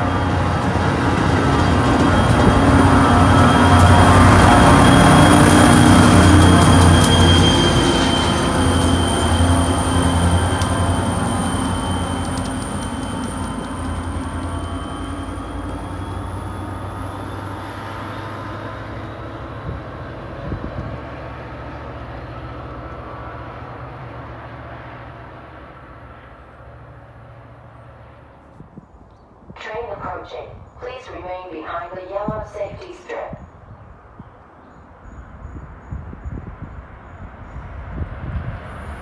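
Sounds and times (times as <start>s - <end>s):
diesel locomotive pulling away: 0.0s - 28.5s.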